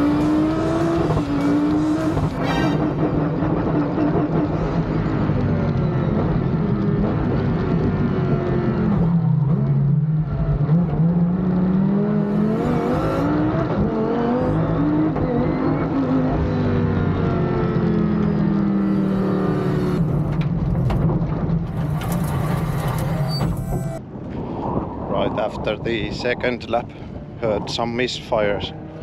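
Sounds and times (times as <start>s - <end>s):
race car engine revving: 0.0s - 4.6s, 10.5s - 20.4s.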